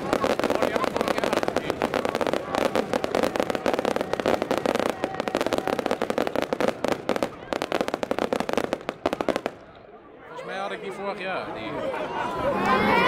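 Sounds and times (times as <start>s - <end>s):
fireworks crackling and popping: 0.0s - 9.9s.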